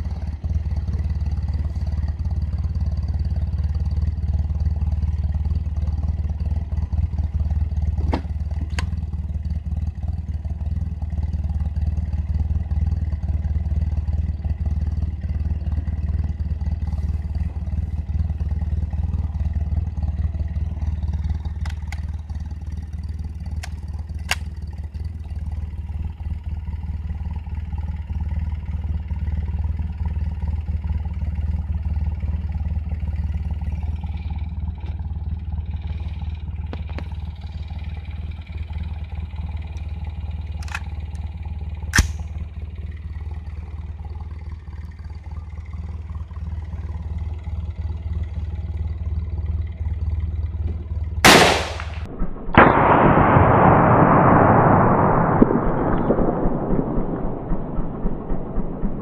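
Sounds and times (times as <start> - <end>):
steady low rumble: 0.0 - 59.0
rifle shot crack: 40.6 - 40.9, 41.9 - 42.3, 51.2 - 59.0
sharp bang: 51.3 - 59.0
loud rushing noise: 52.5 - 59.0.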